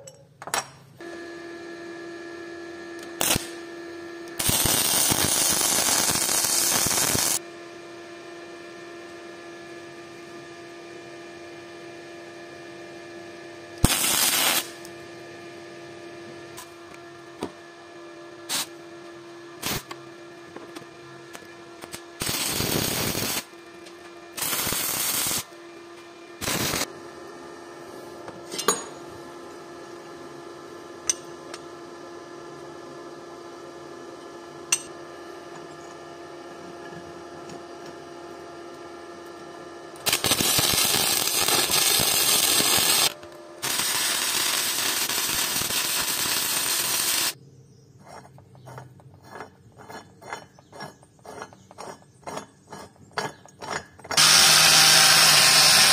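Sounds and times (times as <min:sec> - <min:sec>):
power tool running: 0:01.0 - 0:28.4, 0:34.7 - 0:47.4, 0:54.1 - 0:55.9
steady hum: 0:02.6 - 0:47.7.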